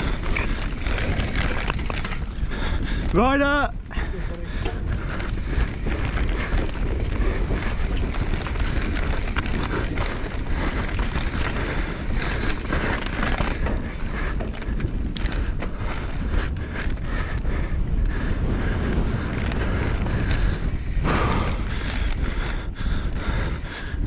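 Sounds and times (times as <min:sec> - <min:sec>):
bike clicks and knocks: 0:00.0 - 0:03.3, 0:04.5 - 0:18.2
bike tyres rolling on dirt: 0:00.0 - 0:24.0
wind buffeting microphone: 0:00.0 - 0:24.0.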